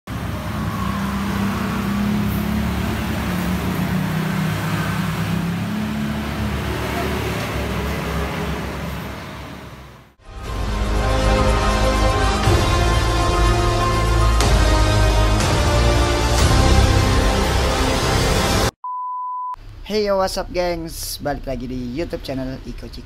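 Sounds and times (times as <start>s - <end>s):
vehicle engine running: 0.1s - 8.4s.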